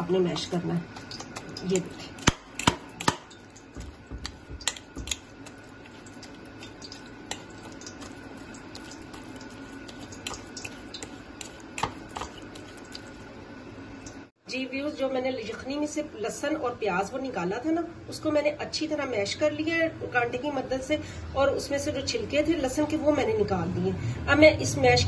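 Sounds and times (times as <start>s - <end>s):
fork scraping on ceramic plate: 3.8s - 13.0s.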